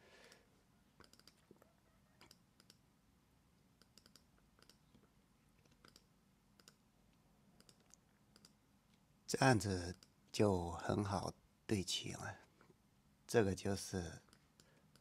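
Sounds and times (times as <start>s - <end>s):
computer mouse clicks: 1.0s - 1.6s, 2.2s - 2.8s, 3.8s - 6.8s, 7.6s - 8.6s, 14.3s - 15.0s.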